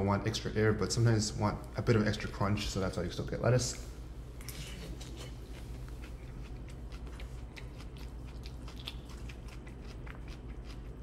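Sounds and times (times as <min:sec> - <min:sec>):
low steady hum: 0:00.0 - 0:11.0
person chewing food: 0:04.8 - 0:11.0.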